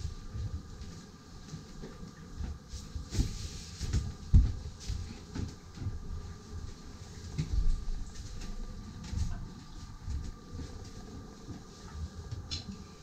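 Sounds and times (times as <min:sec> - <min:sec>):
faint steady hum: 0:00.0 - 0:13.0
footsteps thumping: 0:02.4 - 0:06.3.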